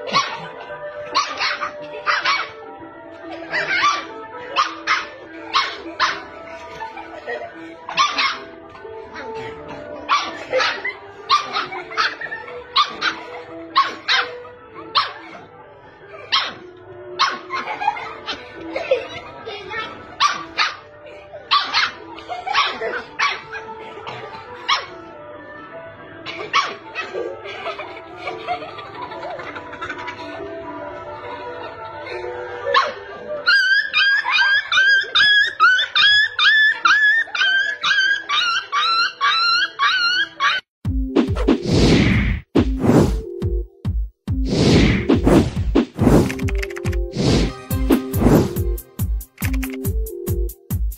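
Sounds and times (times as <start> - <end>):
dog barking: 0.0 - 2.6, 3.4 - 6.3, 7.9 - 8.5, 10.1 - 15.5, 16.2 - 17.7, 20.2 - 20.9, 21.5 - 25.0, 26.3 - 27.3, 32.7 - 40.6
background music: 0.0 - 50.9
puppy yapping: 32.8 - 40.6.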